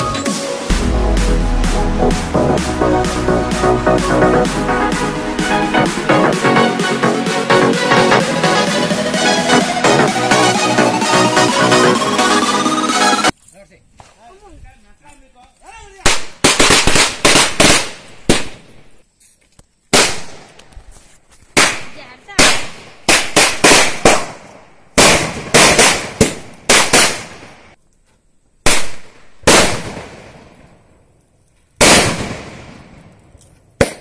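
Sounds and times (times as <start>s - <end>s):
firecrackers banging: 16.0s - 18.7s, 21.6s - 27.6s, 31.8s - 33.0s.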